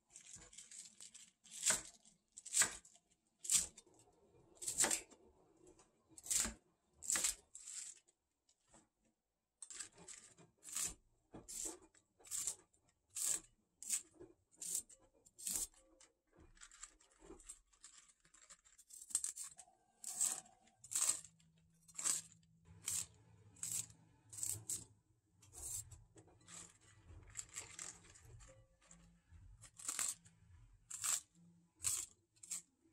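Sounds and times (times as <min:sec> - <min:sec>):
knife on wooden cutting board: 0:10.0 - 0:12.6, 0:18.9 - 0:21.3, 0:22.0 - 0:24.8, 0:25.4 - 0:26.8.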